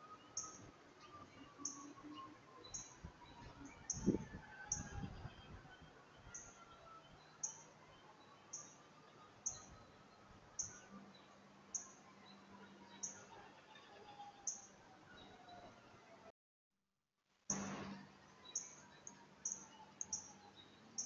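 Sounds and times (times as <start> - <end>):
small bird chirping: 0.3 - 5.0, 7.3 - 10.0, 10.6 - 13.3, 14.4 - 15.4, 18.4 - 21.0.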